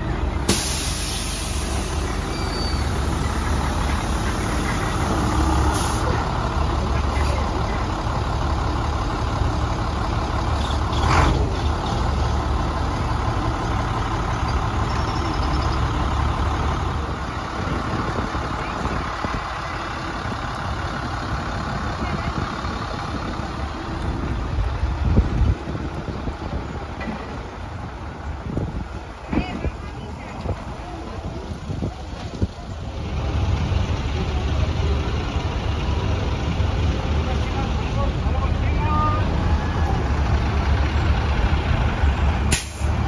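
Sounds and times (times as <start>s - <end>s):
bus engine running: 0.0s - 43.0s
air brake hiss: 0.5s - 3.0s, 5.6s - 6.1s, 42.5s - 43.0s.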